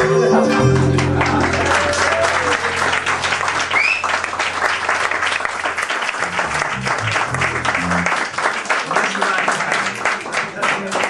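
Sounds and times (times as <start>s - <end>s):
string band low note: 0.5s - 8.3s
audience clapping: 0.6s - 11.0s
rising whistle from crowd: 3.6s - 4.3s.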